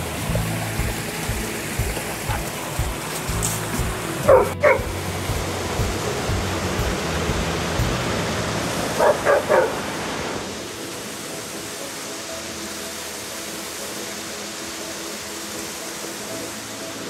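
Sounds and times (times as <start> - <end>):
creek and small waterfall rushing: 0.0 - 17.0
dog barking: 4.2 - 4.9, 9.0 - 9.8.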